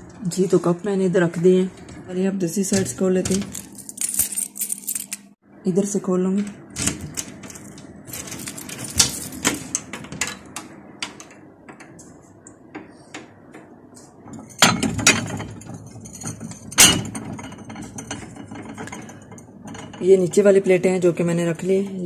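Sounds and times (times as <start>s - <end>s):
cabinet lock and door opening: 6.4s - 11.9s.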